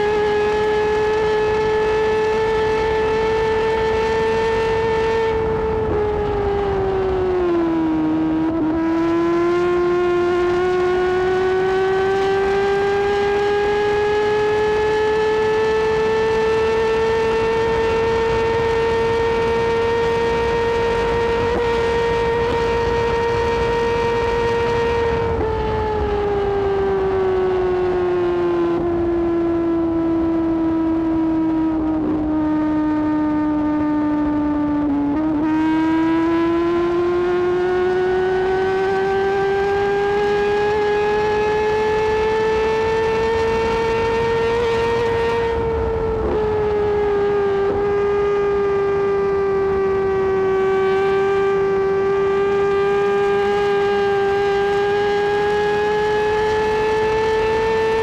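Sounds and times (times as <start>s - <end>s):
motorcycle engine at high revs: 0.0s - 58.0s
wind rush: 3.8s - 8.4s, 42.9s - 48.1s.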